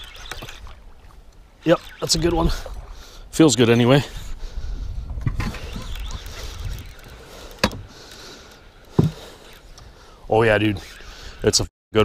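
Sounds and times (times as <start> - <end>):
fishing reel being worked: 0.0 - 3.2, 5.4 - 11.6
wind rumbling on microphone: 0.0 - 8.0
water noise: 0.0 - 11.6.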